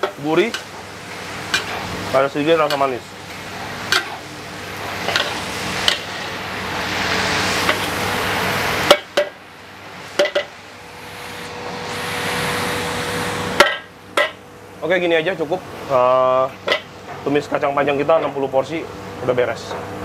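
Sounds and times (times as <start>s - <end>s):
beans sizzling in a wok: 0.0s - 14.2s.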